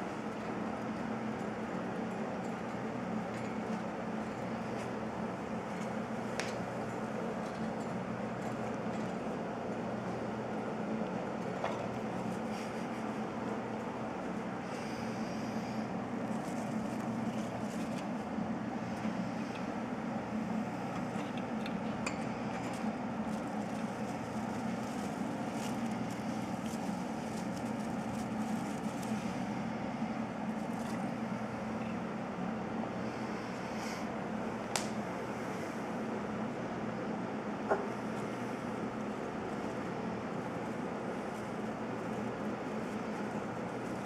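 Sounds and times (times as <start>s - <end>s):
low mechanical hum: 0.0s - 44.0s.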